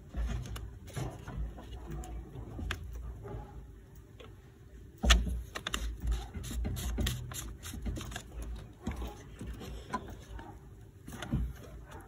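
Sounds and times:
plastic clicks knocks and scrapes: 5.0 - 10.4.

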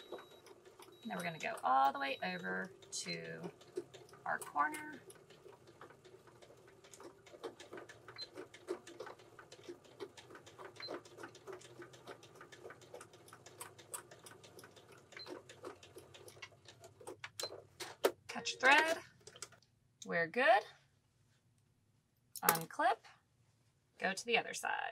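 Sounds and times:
sewing machine stitching: 0.0 - 19.6.

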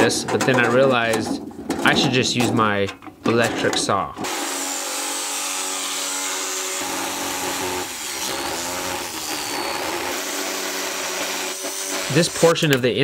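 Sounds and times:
electric jigsaw sawing sheet metal: 4.2 - 12.8.

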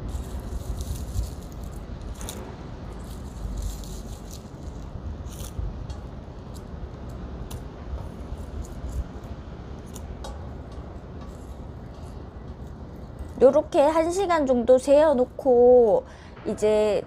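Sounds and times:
low background rumble: 0.0 - 17.0.

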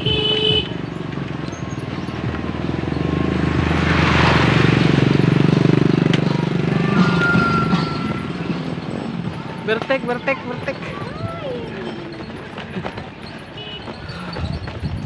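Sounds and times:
small motorcycle engines running: 0.0 - 15.0
motorcycle passing close by: 0.8 - 7.5.

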